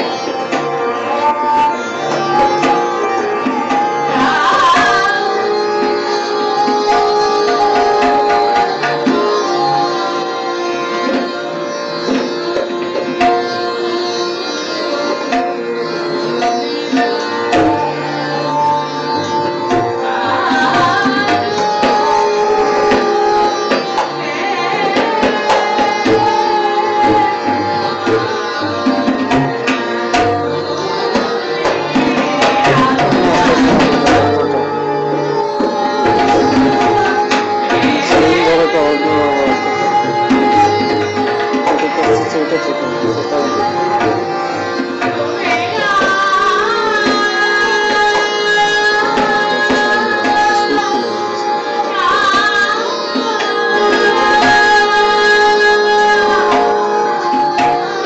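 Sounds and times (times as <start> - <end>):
hand drums: 0.0 - 10.0, 12.0 - 14.0, 15.3 - 15.6, 16.3 - 57.9
plucked strings: 11.0 - 46.4, 47.9 - 51.9.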